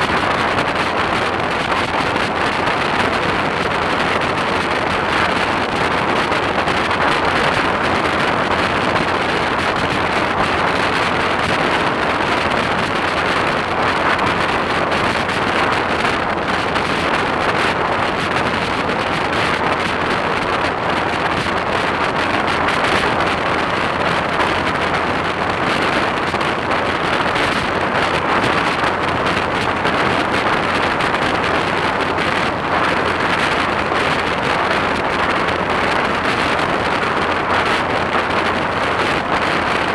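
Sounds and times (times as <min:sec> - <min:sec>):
motorcycle engine: 0:00.0 - 0:39.9
road noise: 0:00.0 - 0:39.9
wind rushing over microphone: 0:00.0 - 0:39.9.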